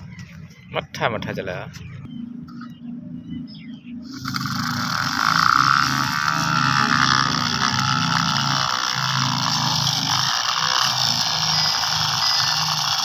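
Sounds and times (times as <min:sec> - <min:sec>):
toy tractor motor whirring: 0:04.0 - 0:13.0.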